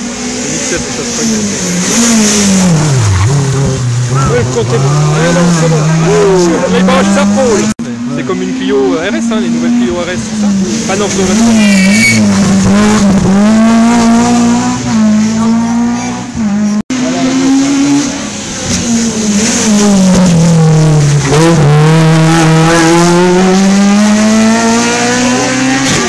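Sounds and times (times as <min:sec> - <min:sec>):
rally car engines revving: 0:00.0 - 0:26.0.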